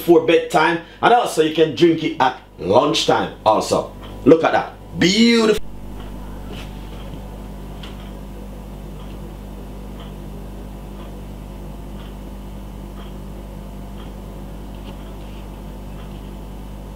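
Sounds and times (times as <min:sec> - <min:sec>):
low electrical hum: 0:00.0 - 0:16.9
faint ticking: 0:03.3 - 0:15.2.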